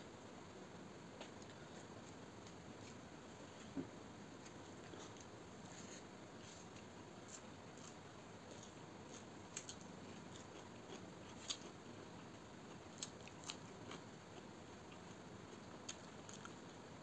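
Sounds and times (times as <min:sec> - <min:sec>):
person chewing food: 0:04.4 - 0:16.6.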